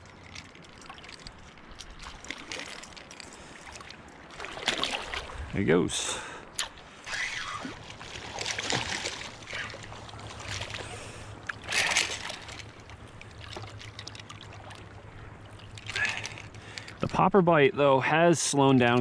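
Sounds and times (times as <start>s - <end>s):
surf water splashing: 0.0s - 17.0s
low steady hum: 0.0s - 19.0s.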